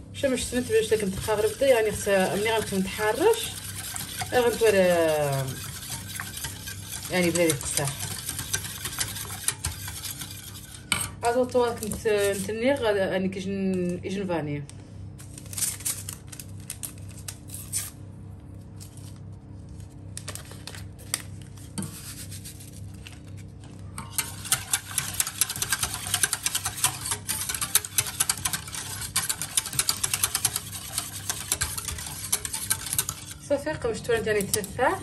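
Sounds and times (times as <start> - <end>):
wire whisk scraping a pot: 0.5 - 11.0, 24.0 - 35.0.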